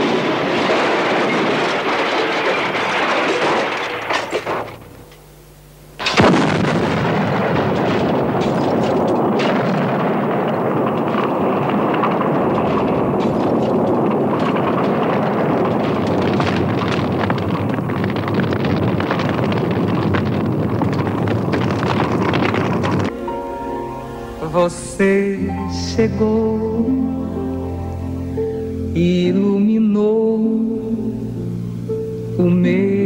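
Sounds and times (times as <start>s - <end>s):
explosion blast: 0.0s - 4.9s, 6.0s - 23.4s
large fire roaring and crackling: 0.0s - 5.0s, 6.0s - 24.6s.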